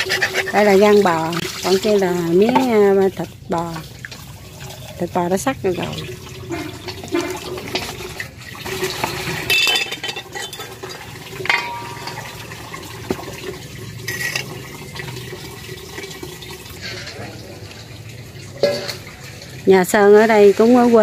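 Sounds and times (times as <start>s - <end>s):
water running and splashing: 0.0s - 21.0s
dishes clinking: 8.8s - 13.2s, 14.0s - 14.6s, 18.6s - 19.1s.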